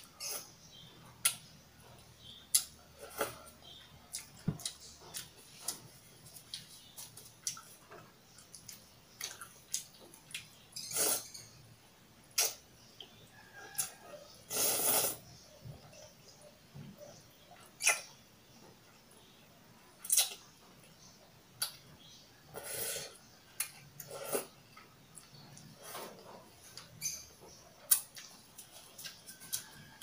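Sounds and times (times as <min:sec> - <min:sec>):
noodle slurping: 0:14.5 - 0:15.2
wet chewing and mouth smacks: 0:27.8 - 0:30.0.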